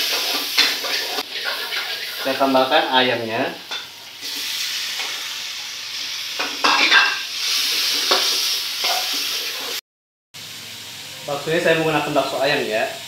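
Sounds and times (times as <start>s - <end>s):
spatula scraping a pan: 0.0s - 2.6s, 6.4s - 9.8s
chicken sizzling in a wok: 0.0s - 9.8s, 10.4s - 13.0s.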